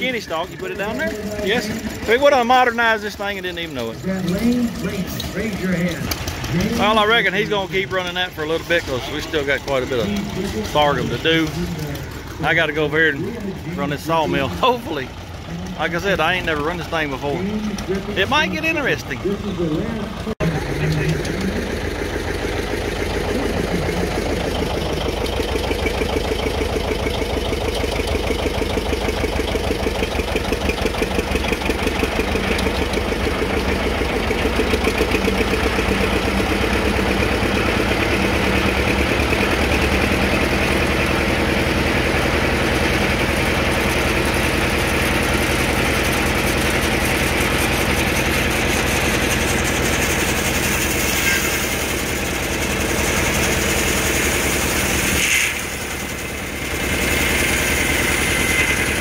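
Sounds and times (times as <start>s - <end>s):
engine running with pulsing beat: 0.0s - 59.0s.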